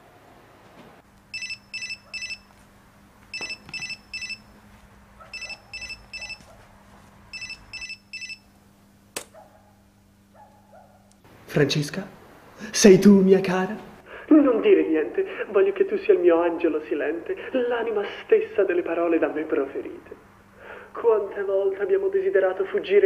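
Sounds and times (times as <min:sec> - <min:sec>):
mobile phone ringtone beeps: 0:01.3 - 0:02.5, 0:03.3 - 0:04.5, 0:05.3 - 0:06.4, 0:07.3 - 0:08.4.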